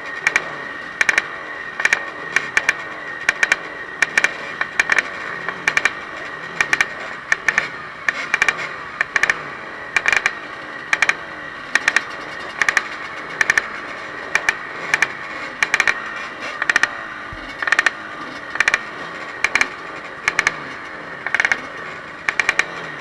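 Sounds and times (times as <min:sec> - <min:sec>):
motorcycle engines idling: 0:00.0 - 0:23.0
sharp clicks: 0:01.8 - 0:05.1, 0:06.6 - 0:09.4, 0:10.0 - 0:11.2, 0:12.6 - 0:13.7, 0:14.4 - 0:16.0, 0:17.5 - 0:17.9, 0:18.5 - 0:20.6, 0:21.2 - 0:22.8.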